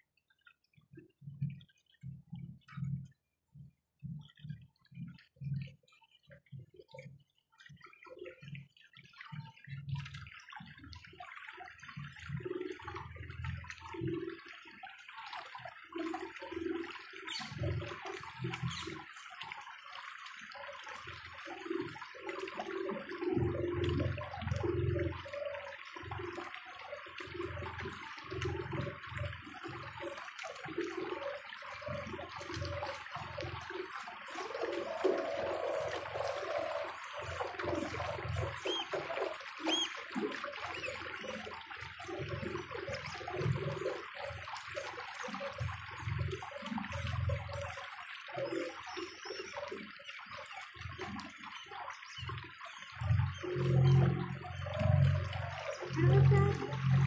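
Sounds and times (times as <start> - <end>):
water sloshing against boat hull: 27.1 - 47.4, 50.7 - 57.0
hiss of moving water: 34.1 - 41.1.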